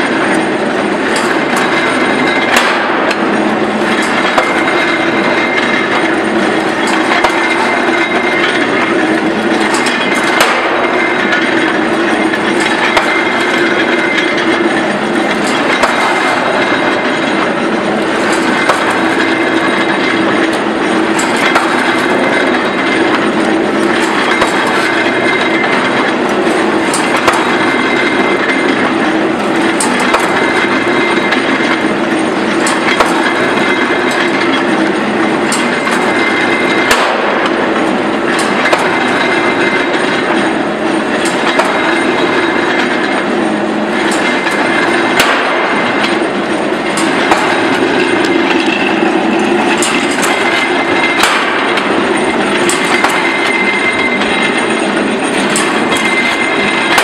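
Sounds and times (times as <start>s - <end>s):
press machine mechanical din: 0.0s - 57.0s
sharp metallic clanks: 0.0s - 57.0s.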